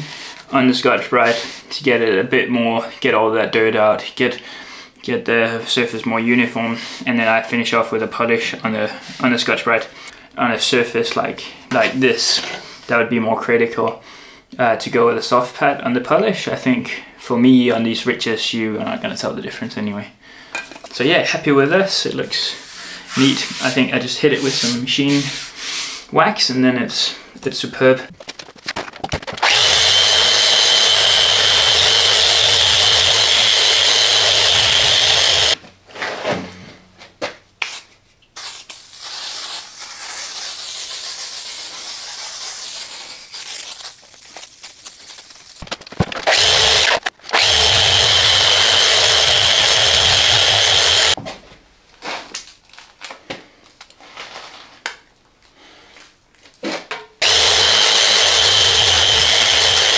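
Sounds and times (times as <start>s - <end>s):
rubbing and handling noises: 20.6s - 26.2s, 28.1s - 29.5s, 35.6s - 47.3s
power tool whining: 29.3s - 35.6s, 46.1s - 51.2s, 57.2s - 59.9s.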